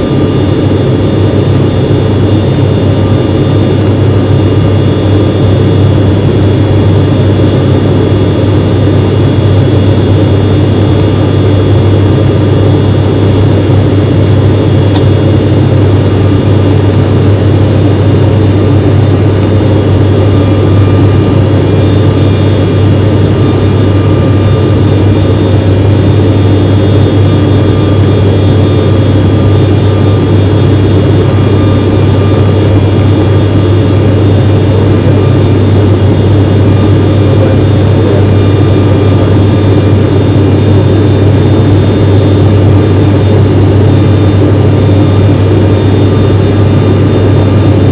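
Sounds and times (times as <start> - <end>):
faint high whines: 0.0 - 47.9
jet aircraft engine roar: 0.0 - 47.9.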